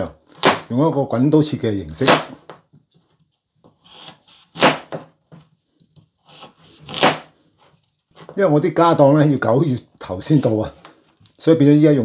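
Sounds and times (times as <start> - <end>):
knife cutting carrot: 3.7 - 5.1, 6.0 - 7.4.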